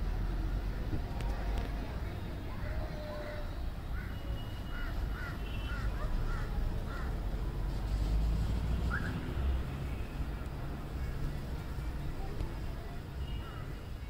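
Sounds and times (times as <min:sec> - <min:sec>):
crows cawing: 0:04.0 - 0:07.1.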